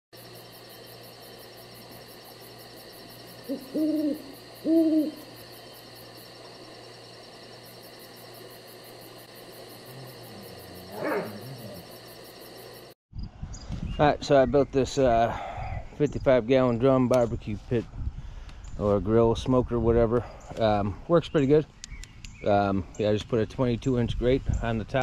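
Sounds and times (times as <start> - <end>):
owl hooting: 3.2 - 5.9.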